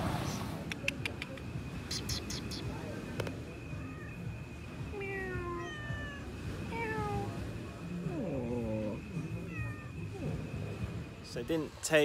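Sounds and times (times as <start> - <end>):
cat meowing: 3.7 - 4.3, 4.9 - 7.4, 8.1 - 10.2.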